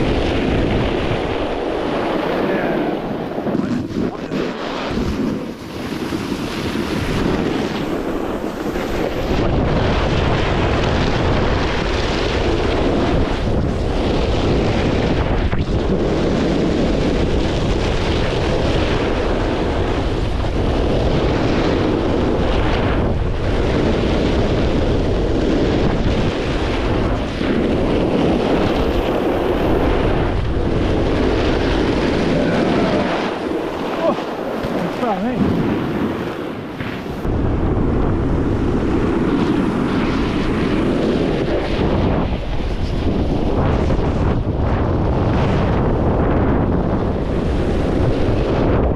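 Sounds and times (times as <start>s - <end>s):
wind buffeting microphone: 0.0s - 48.9s.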